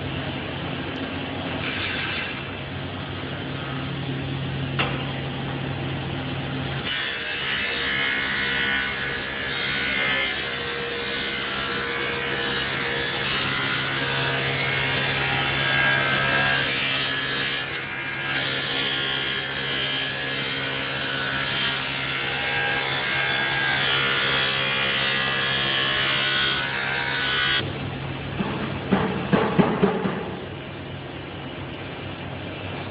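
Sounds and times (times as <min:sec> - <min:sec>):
electric saw cutting stone: 0:06.8 - 0:27.6.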